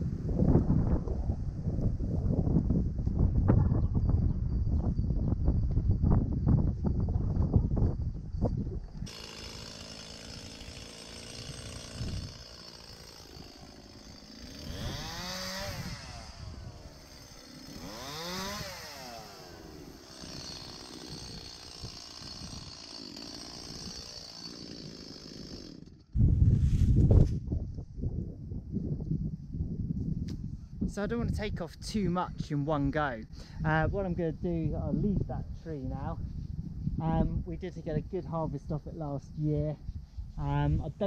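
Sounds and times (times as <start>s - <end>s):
chainsaw revving: 9.0s - 26.1s.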